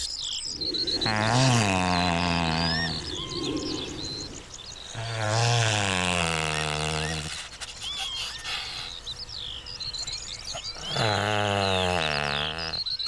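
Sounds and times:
small birds chirping: 0.0 - 13.0
great bustard deep calls: 0.4 - 9.1.

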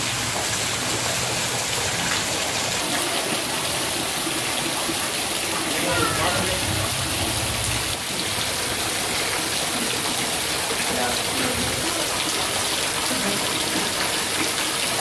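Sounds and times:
faint voices: 5.7 - 7.0.

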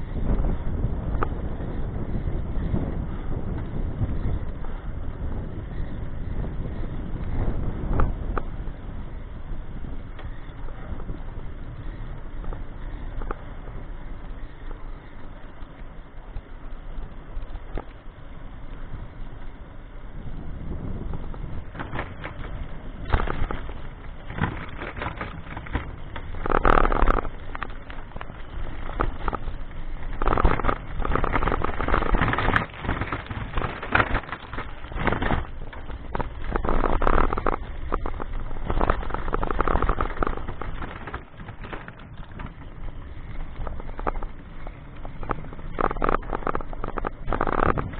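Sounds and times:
wind rushing over microphone: 0.0 - 47.9
camera rattling and knocking: 21.6 - 47.9.

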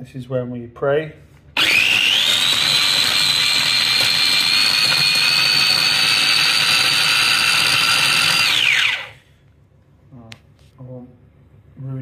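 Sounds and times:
mini chopper motor whining: 1.6 - 9.2.

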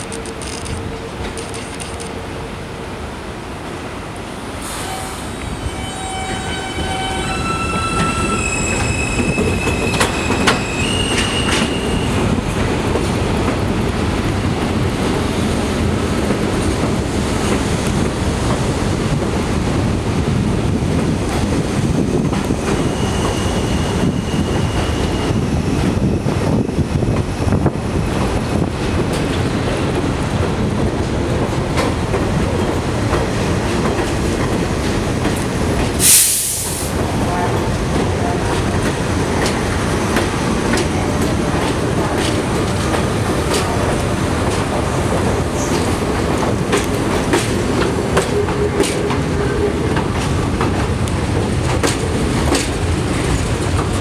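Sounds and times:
subway train rumbling: 0.0 - 54.0
high wheel squeals: 4.7 - 12.3, 22.8 - 25.5.

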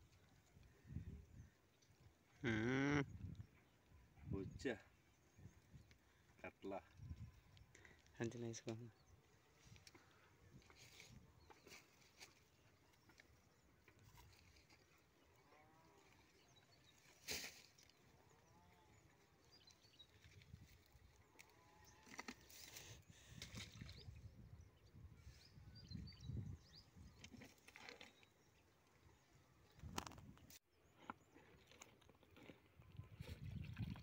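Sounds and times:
faint livestock bleats: 2.4 - 3.2.

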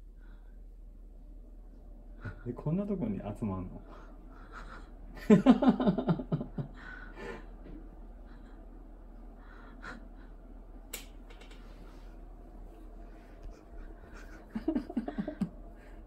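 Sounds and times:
person laughing breathily: 4.3 - 7.6, 13.3 - 16.0.

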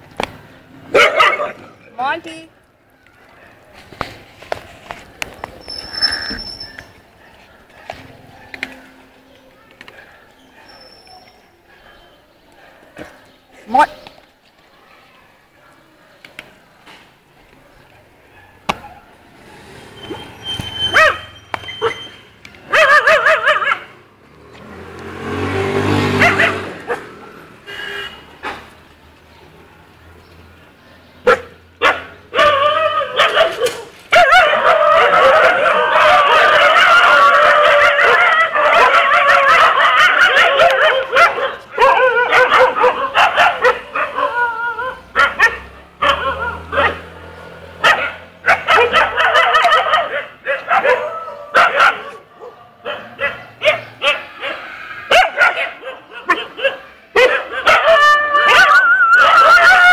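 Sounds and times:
dogs barking: 0.8 - 1.8, 7.1 - 9.1, 17.6 - 24.0, 24.7 - 27.3, 31.2 - 59.9.

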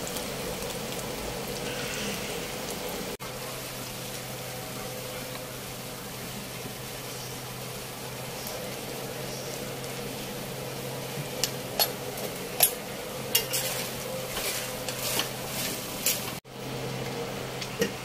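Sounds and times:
vegetables sizzling in a wok: 0.0 - 18.0
spatula scraping a wok: 1.6 - 2.6, 13.3 - 16.4.

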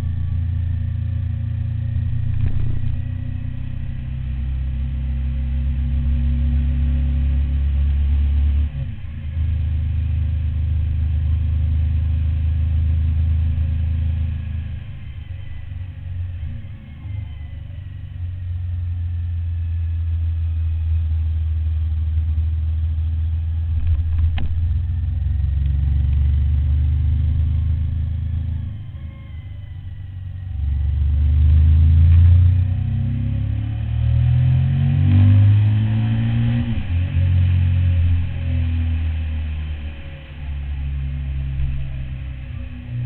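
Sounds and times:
motorcycle engine running: 17.7 - 29.1.

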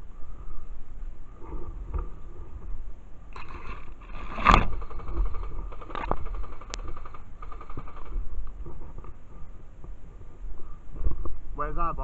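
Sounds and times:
sharp clicks: 4.5 - 8.6.

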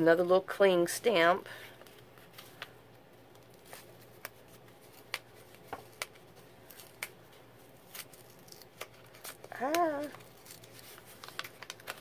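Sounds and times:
paper ticks and rustles: 8.8 - 12.0.

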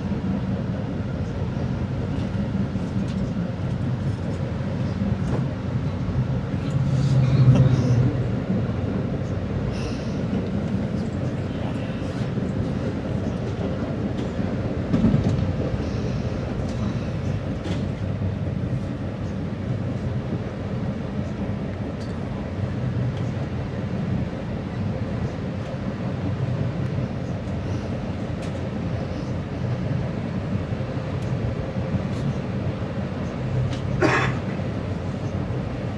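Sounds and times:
train wheels rumbling on rails: 0.0 - 35.9
train thump: 14.1 - 15.7.

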